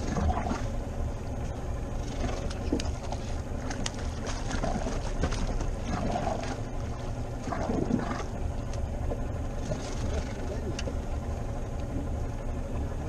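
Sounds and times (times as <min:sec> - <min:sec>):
knocks and splashes: 0:00.0 - 0:00.8, 0:02.0 - 0:08.3
water washing against boat hull: 0:00.0 - 0:12.2.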